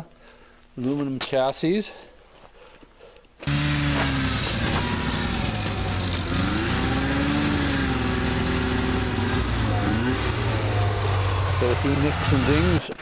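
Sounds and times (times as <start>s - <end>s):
snowmobile engine running: 3.4s - 13.0s.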